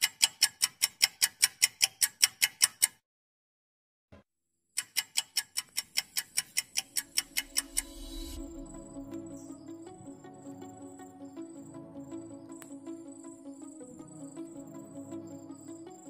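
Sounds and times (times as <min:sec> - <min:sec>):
rapid sharp ticking: 0:04.8 - 0:09.0.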